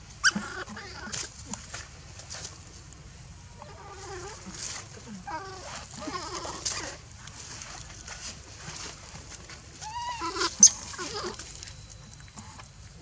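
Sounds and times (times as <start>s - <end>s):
infant monkey squealing: 0.2s - 1.1s, 9.8s - 11.4s.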